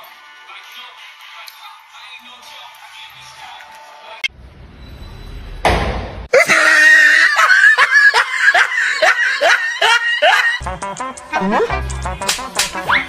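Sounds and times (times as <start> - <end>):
high-pitched squealing laughter: 6.3 - 10.6.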